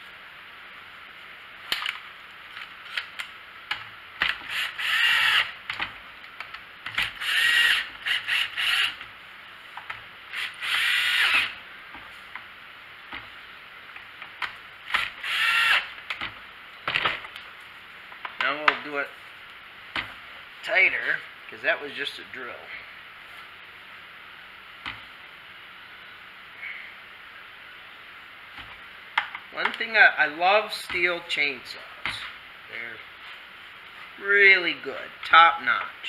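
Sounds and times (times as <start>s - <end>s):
cordless drill whirring: 4.4s - 5.6s, 7.0s - 9.0s, 10.3s - 11.6s, 14.9s - 15.9s.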